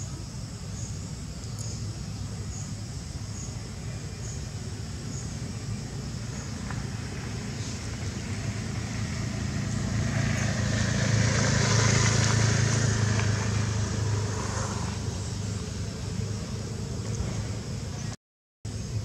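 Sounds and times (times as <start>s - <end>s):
motor vehicle passing: 6.2s - 17.8s.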